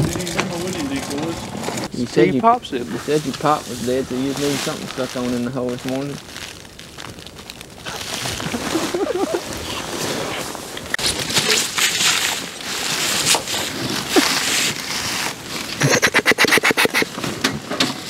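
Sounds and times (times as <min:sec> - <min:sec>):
duck call notes: 0:15.8 - 0:17.1.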